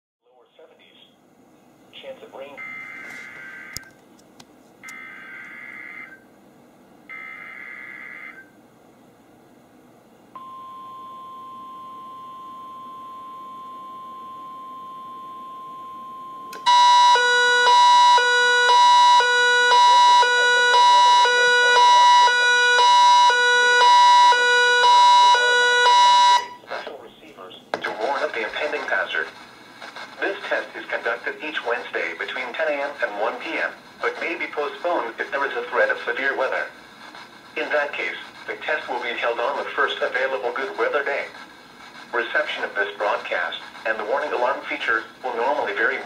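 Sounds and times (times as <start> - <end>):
alarm beeping alternating pitches: 4.9 - 6.2, 7.1 - 8.4, 10.4 - 26.6
steady weather alert tone: 16.6 - 26.6.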